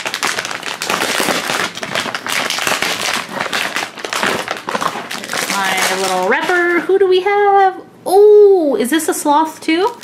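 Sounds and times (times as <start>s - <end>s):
plastic packaging crackling: 0.0s - 6.8s, 9.4s - 10.0s.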